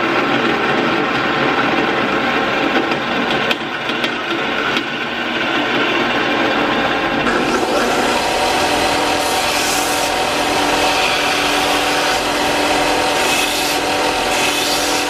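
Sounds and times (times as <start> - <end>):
band saw cutting steel: 7.2 - 15.0.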